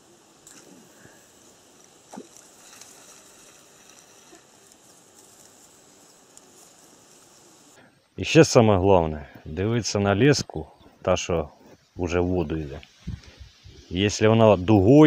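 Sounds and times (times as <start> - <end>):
small natural sounds: 0.0 - 15.0
soft outdoor hiss: 0.0 - 15.0.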